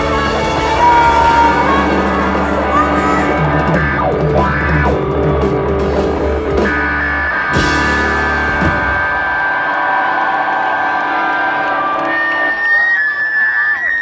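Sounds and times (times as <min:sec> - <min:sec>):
live rock band playing: 0:00.0 - 0:13.0.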